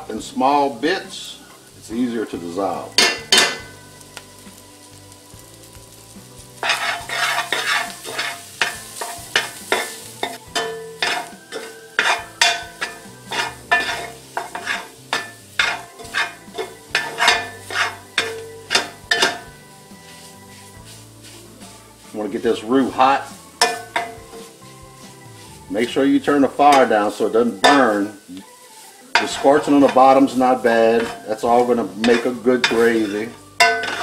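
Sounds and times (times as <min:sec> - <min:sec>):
vegetables sizzling: 0:00.0 - 0:34.0
metal spoon scraping a pot: 0:06.6 - 0:19.6, 0:23.1 - 0:24.8, 0:29.1 - 0:34.0.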